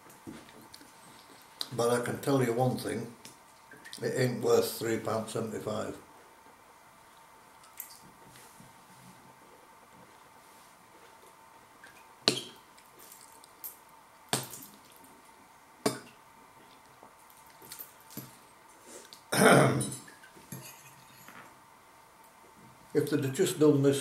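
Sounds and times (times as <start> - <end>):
cutlery clinking on ceramic bowl: 19.8 - 21.5
cutlery tapping and scraping: 19.9 - 21.5.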